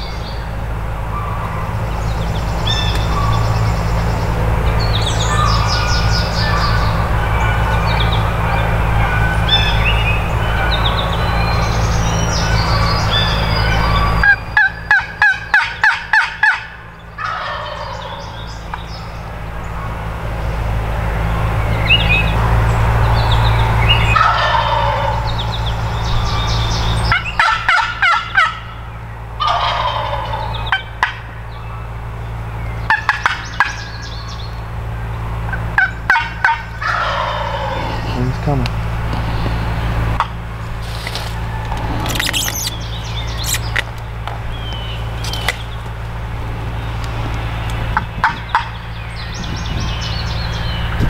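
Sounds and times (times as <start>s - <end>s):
songbirds chirping faintly: 0.0s - 51.0s
turkey gobbling: 12.4s - 18.8s, 24.1s - 25.4s, 27.1s - 31.3s, 32.8s - 34.4s, 35.4s - 38.4s, 40.2s - 45.6s, 48.2s - 48.9s.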